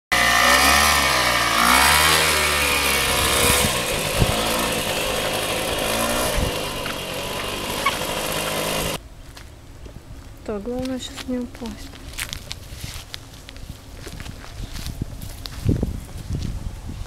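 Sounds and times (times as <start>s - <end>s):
motor scooter engine revving: 0.1s - 9.0s.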